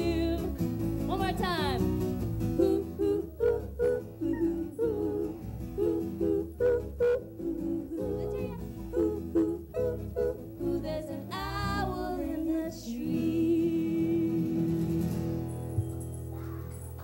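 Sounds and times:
band playing guitars: 0:00.0 - 0:17.0
person singing: 0:02.6 - 0:15.3.

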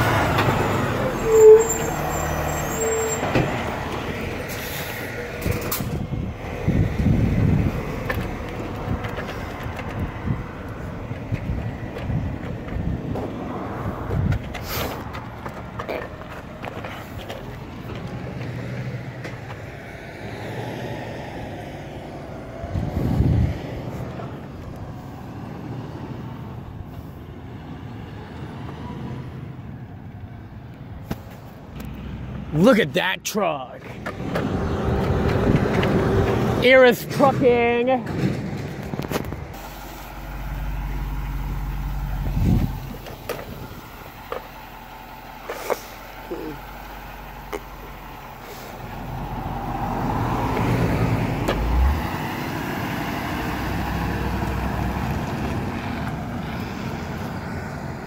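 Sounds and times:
truck engine driving away: 0:00.0 - 0:29.8, 0:33.8 - 0:36.8, 0:38.1 - 0:58.0
traffic hum: 0:00.0 - 0:58.0
low rumble: 0:39.2 - 0:45.4.

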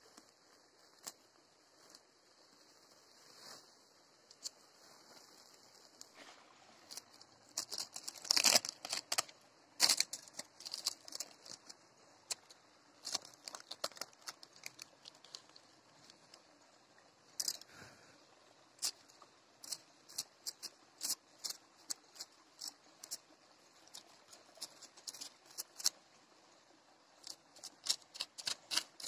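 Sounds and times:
charred leaf crackling and rustling: 0:04.3 - 0:16.4, 0:19.6 - 0:26.0, 0:27.2 - 0:29.0.

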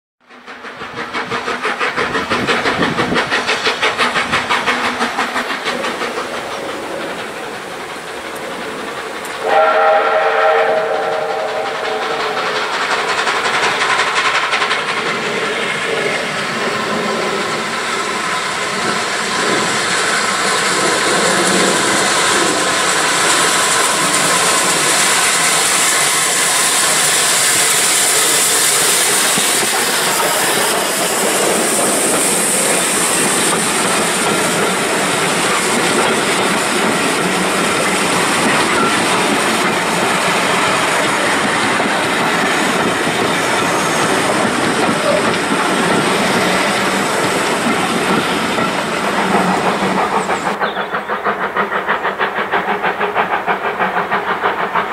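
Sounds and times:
steam locomotive exhaust beats: 0:00.2 - 0:54.9
wheels clattering on rail: 0:00.4 - 0:54.9
steam whistle: 0:09.4 - 0:12.6.

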